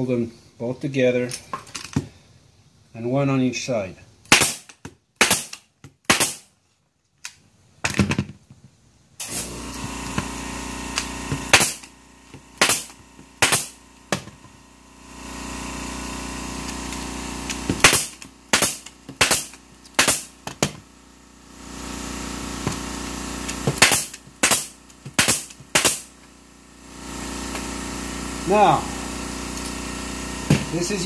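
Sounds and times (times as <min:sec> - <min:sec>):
staple gun firing: 0:04.3 - 0:06.4, 0:11.5 - 0:11.9, 0:12.6 - 0:14.3, 0:17.5 - 0:20.7, 0:23.5 - 0:26.1
steady hum: 0:09.1 - 0:31.0.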